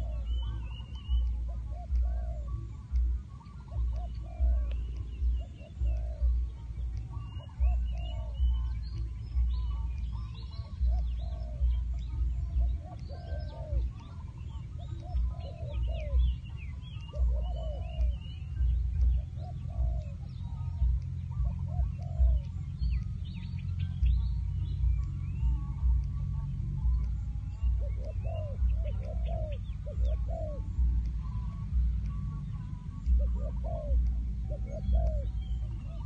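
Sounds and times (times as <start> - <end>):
decoy bird cooing: 0.0 - 36.0
small birds chirping: 0.0 - 36.0.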